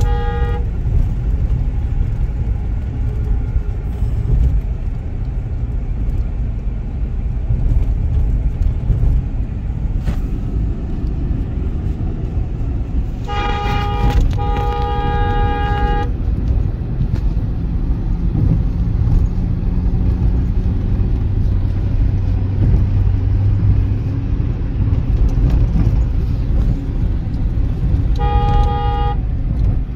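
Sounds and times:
vehicle horn honking: 0:00.0 - 0:00.7, 0:13.2 - 0:16.2, 0:28.2 - 0:29.2
road and engine rumble in car: 0:00.0 - 0:29.9.

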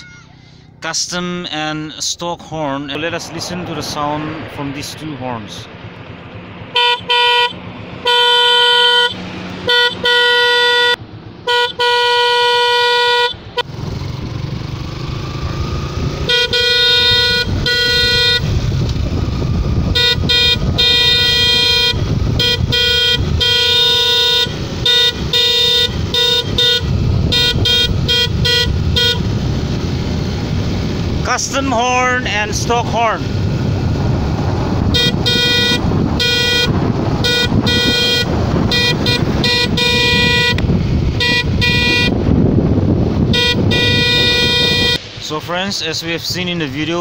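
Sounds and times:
wind noise: 0:02.3 - 0:10.3, 0:13.7 - 0:47.0
motorcycle engine riding: 0:04.4 - 0:45.3
motorcycle horn honking: 0:06.7 - 0:13.7, 0:16.1 - 0:18.7, 0:19.8 - 0:29.5, 0:34.9 - 0:42.3, 0:43.2 - 0:45.0.

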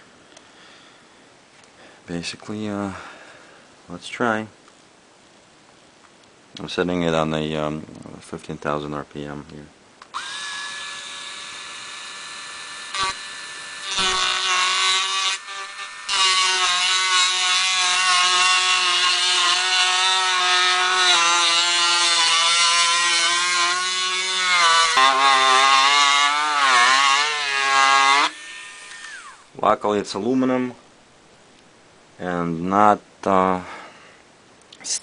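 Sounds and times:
rotary tool grinding metal: 0:10.2 - 0:29.4.

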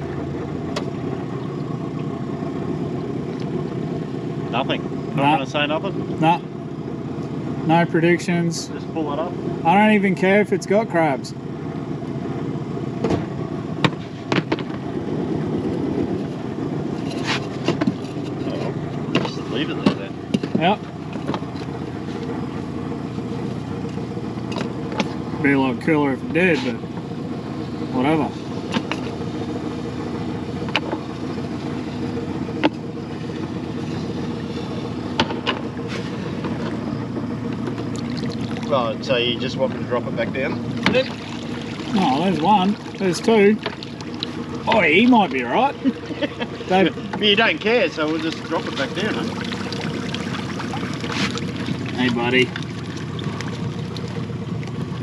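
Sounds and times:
outboard motor idling: 0:00.0 - 0:55.0
sharp knocks: 0:13.0 - 0:14.8.

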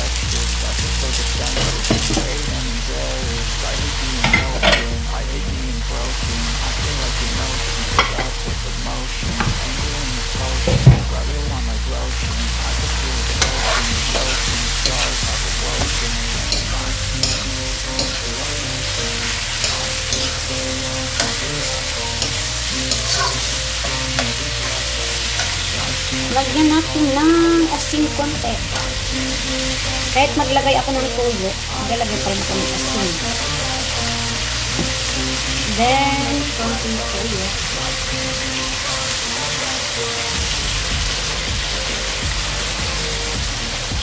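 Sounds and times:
meat sizzling in a wok: 0:00.0 - 0:02.6, 0:12.4 - 0:44.0
metal spoon scraping and tapping pan: 0:19.6 - 0:20.4, 0:22.2 - 0:24.8.

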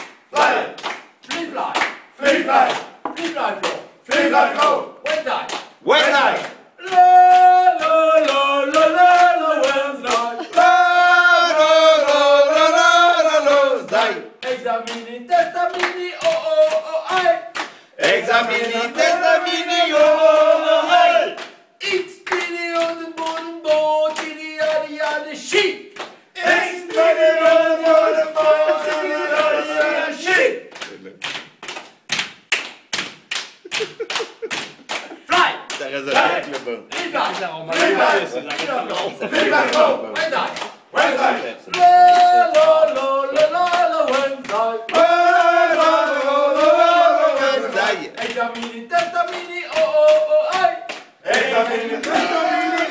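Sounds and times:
hands clapping: 0:00.0 - 0:52.9
men's choir singing: 0:06.0 - 0:17.4, 0:18.0 - 0:21.4, 0:26.4 - 0:30.5, 0:37.7 - 0:52.9.

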